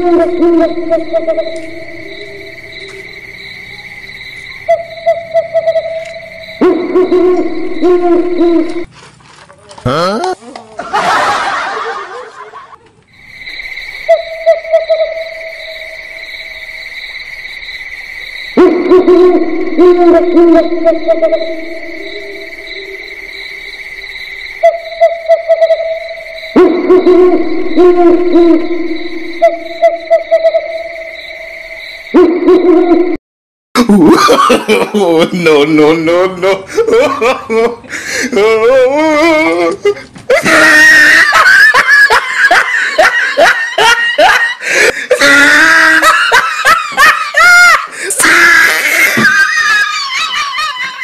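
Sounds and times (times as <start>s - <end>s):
owl hooting: 0.0s - 8.9s, 13.5s - 16.6s, 18.5s - 31.4s
steady high tone: 0.0s - 8.9s, 13.2s - 33.2s.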